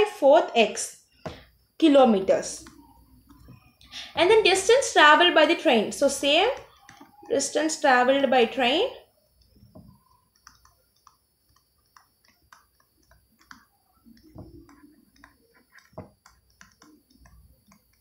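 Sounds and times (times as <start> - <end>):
stylus tapping on tablet screen: 1.2 - 1.6, 2.5 - 3.8, 6.0 - 18.0.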